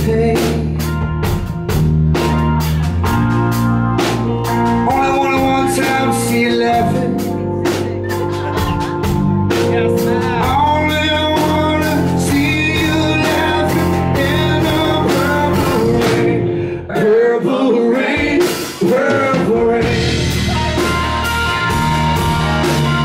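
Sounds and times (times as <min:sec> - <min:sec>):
person singing: 0:00.0 - 0:01.0, 0:04.4 - 0:21.8
electric guitar: 0:00.0 - 0:16.8, 0:19.3 - 0:23.0
bass guitar: 0:00.0 - 0:23.0
drums: 0:00.0 - 0:23.0.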